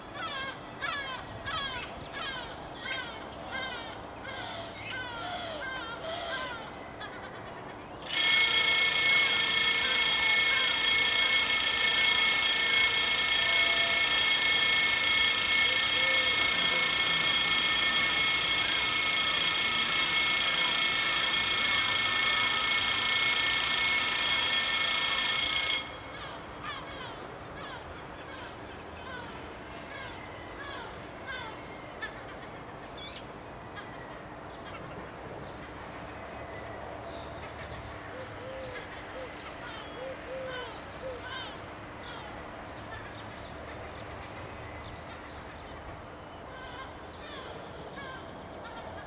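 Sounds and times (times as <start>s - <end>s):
level crossing warning bells: 8.0s - 27.2s.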